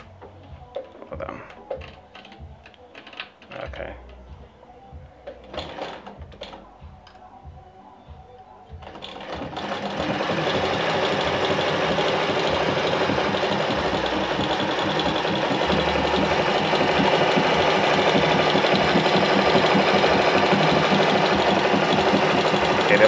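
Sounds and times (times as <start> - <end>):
sewing machine running: 8.8 - 23.0.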